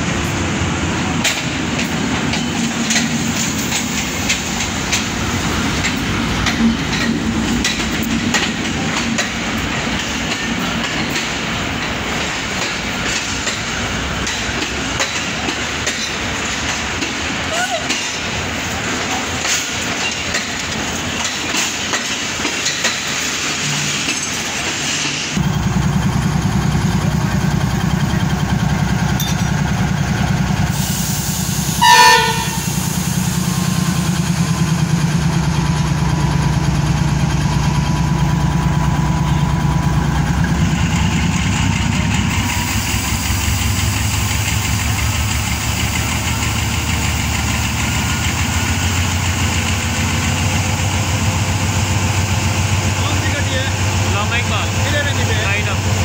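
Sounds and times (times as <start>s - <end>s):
diesel locomotive engine running: 0.0s - 56.0s
train horn blast: 31.7s - 32.8s.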